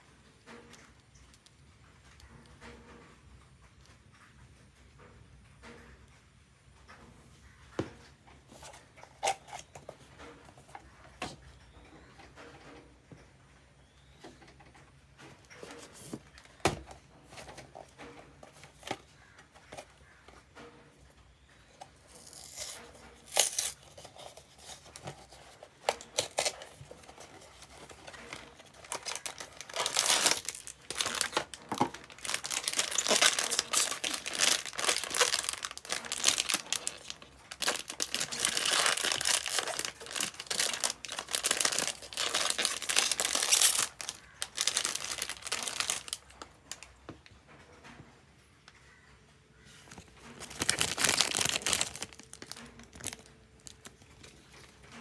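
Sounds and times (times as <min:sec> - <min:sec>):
foil bag crinkling and tearing: 0:22.1 - 0:46.8, 0:50.0 - 0:54.6.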